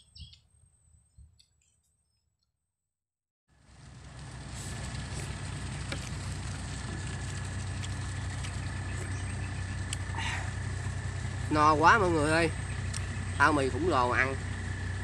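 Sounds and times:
engine droning with high whine: 0:03.5 - 0:15.0.

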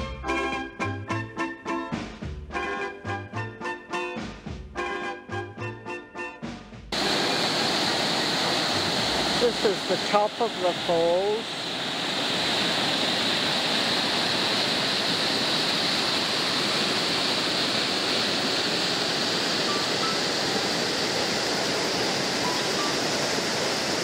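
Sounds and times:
water rushing over rock: 0:07.0 - 0:24.0.

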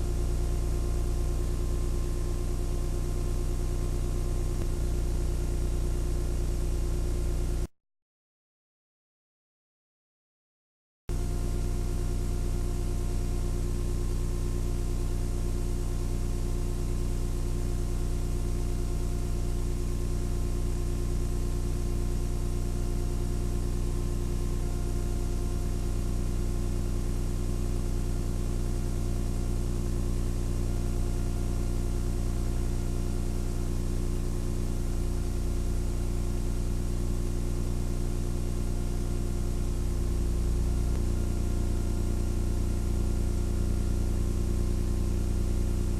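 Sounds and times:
machine hum: 0:00.0 - 0:07.7, 0:11.1 - 0:45.9
constant hiss: 0:03.8 - 0:06.8.

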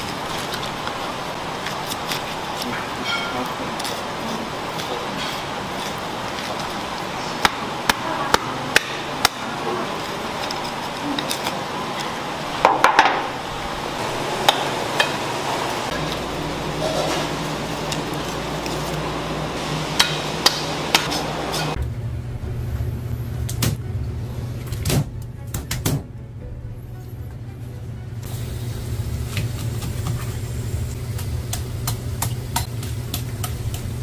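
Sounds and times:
kitchen background noise: 0:00.0 - 0:26.2, 0:26.8 - 0:34.0
low hum: 0:13.3 - 0:25.4.

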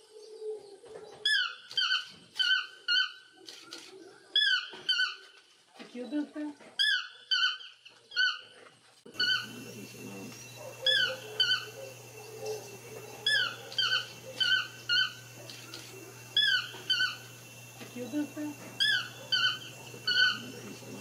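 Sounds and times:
bird calling with squeaky notes: 0:01.2 - 0:05.4, 0:09.1 - 0:21.0
background hiss: 0:09.1 - 0:21.0.

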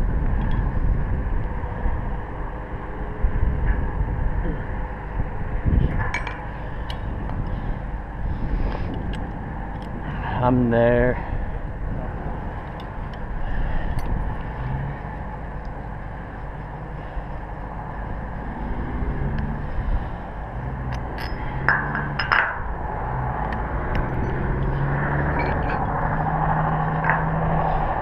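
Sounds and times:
low hum: 0:00.0 - 0:28.0
wind rumbling on microphone: 0:00.0 - 0:28.0
metal clinks on steel: 0:20.9 - 0:22.4.

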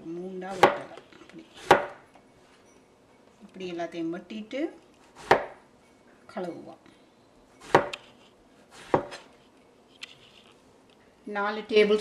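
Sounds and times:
knife chopping onto plastic board: 0:00.5 - 0:00.9, 0:01.6 - 0:02.0, 0:05.2 - 0:05.6, 0:07.6 - 0:08.0, 0:08.8 - 0:09.3.

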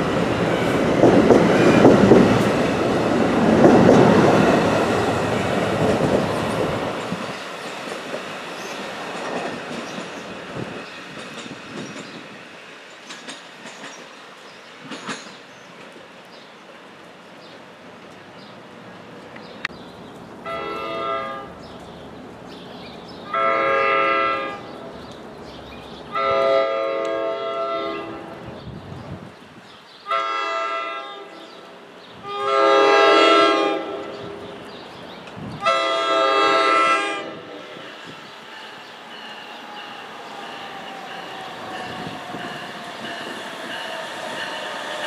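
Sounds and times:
train air horn blasts: 0:20.4 - 0:21.6, 0:23.3 - 0:24.7, 0:26.1 - 0:28.4, 0:30.1 - 0:31.5, 0:32.2 - 0:34.4, 0:35.6 - 0:37.6.

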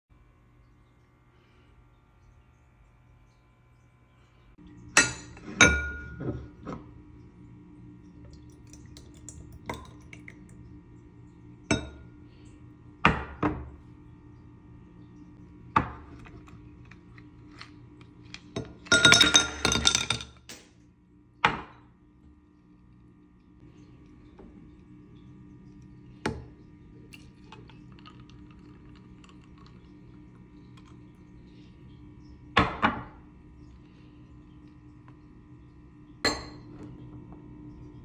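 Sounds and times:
glassware clinking: 0:05.0 - 0:06.8, 0:11.7 - 0:12.1, 0:18.6 - 0:20.6, 0:36.2 - 0:36.9
ice cubes dropping into glass: 0:18.9 - 0:20.6.

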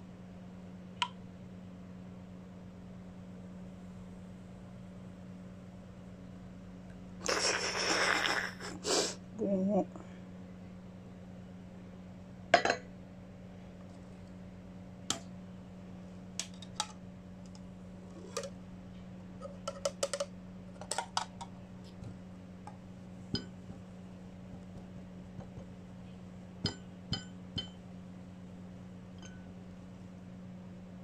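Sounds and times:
low hum: 0:09.3 - 0:31.0.

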